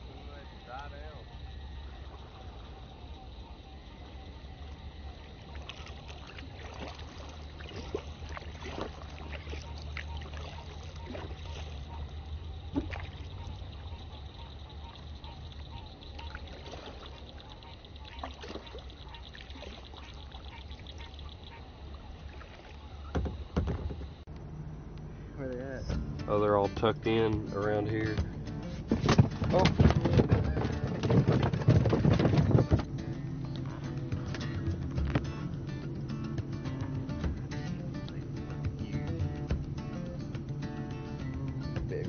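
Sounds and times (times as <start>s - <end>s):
steady low hum: 0.0s - 42.0s
small splashes: 5.1s - 23.6s
water dripping off paddle: 5.4s - 11.9s, 15.3s - 22.9s.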